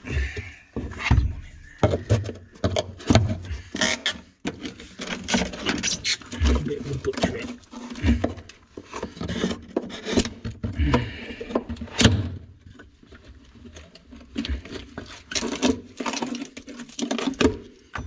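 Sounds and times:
wooden boards cracking and splintering: 0:13.8 - 0:17.8.

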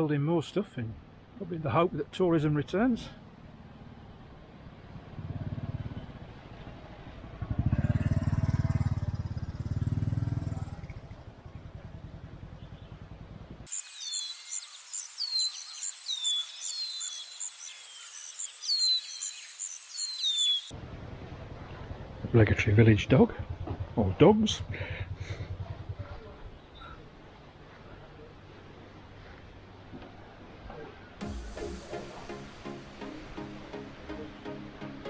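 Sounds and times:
motorcycle engine running: 0:03.4 - 0:13.7, 0:20.7 - 0:26.7
birdsong chirps and whistles: 0:13.7 - 0:20.7.

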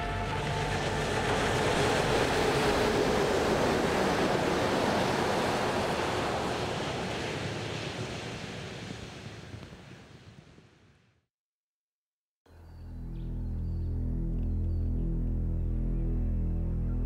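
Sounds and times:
truck passing: 0:00.0 - 0:07.4.

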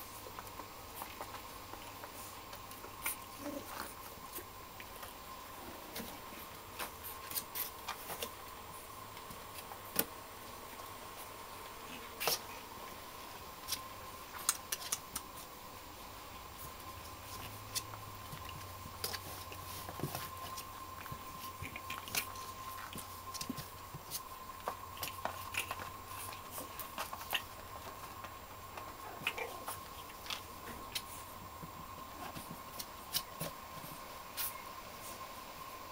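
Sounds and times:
faint steady whine: 0:00.0 - 0:35.9
puppy claws scrabbling: 0:13.6 - 0:15.5, 0:16.6 - 0:34.6.

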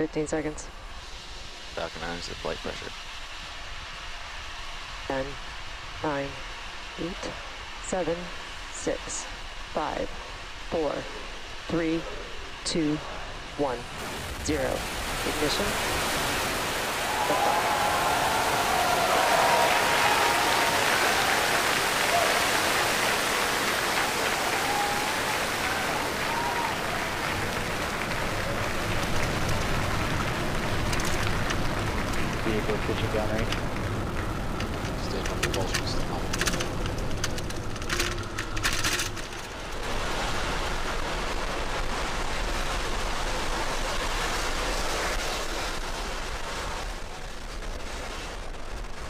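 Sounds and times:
rocket engines roaring: 0:00.0 - 0:49.0
crowd applauding and cheering: 0:16.9 - 0:36.6.

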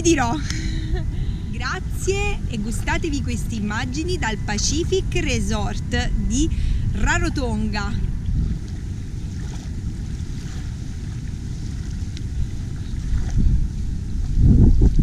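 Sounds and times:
wind buffeting microphone: 0:00.0 - 0:15.0
shallow water washing at shore: 0:06.5 - 0:15.0.

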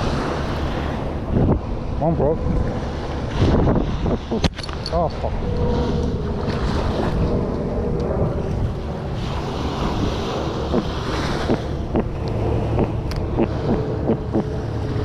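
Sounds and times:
surf washing the beach: 0:00.0 - 0:15.0
wind buffeting microphone: 0:00.0 - 0:15.0
fish croaking: 0:10.5 - 0:14.8.

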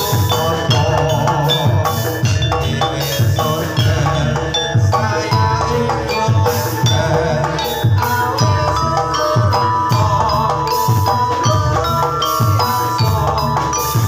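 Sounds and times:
drums beating fast rhythm: 0:00.0 - 0:14.0
ringing metallophone notes: 0:00.0 - 0:14.0.

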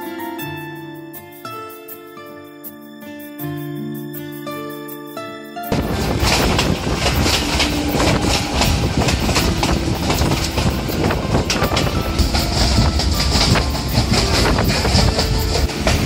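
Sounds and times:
train rumble and rattle: 0:05.7 - 0:16.0
wheels clacking over rail joints: 0:05.7 - 0:16.0.

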